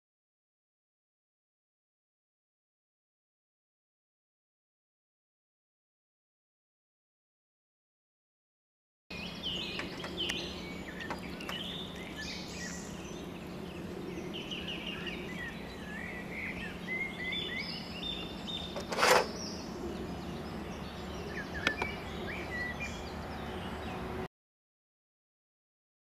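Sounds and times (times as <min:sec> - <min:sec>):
songbirds chirping and singing: 0:09.1 - 0:24.3
steady low hum: 0:09.1 - 0:24.3
metal frame clicks: 0:18.8 - 0:19.4.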